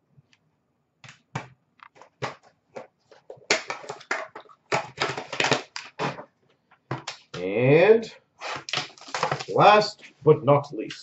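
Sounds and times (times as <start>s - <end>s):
cards clicking and rustling: 1.0s - 7.4s, 8.5s - 9.7s.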